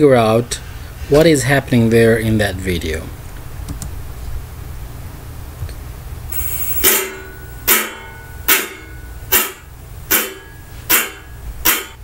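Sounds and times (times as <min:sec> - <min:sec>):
metal spoon striking metal bowl: 0:06.3 - 0:12.0.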